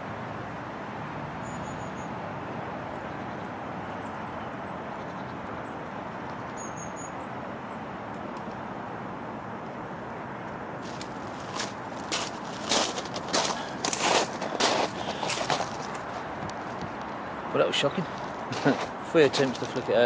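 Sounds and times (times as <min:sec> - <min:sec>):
distant road traffic hum: 0:00.0 - 0:20.0
faint high bird chirps: 0:01.4 - 0:02.1, 0:06.6 - 0:07.3.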